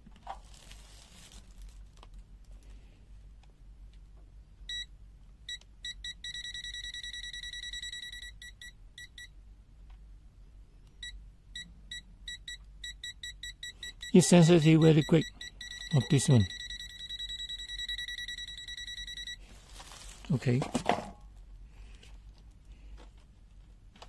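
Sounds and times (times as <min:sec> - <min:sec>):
high-pitched alarm beeps: 0:05.5 - 0:09.3, 0:11.0 - 0:19.4.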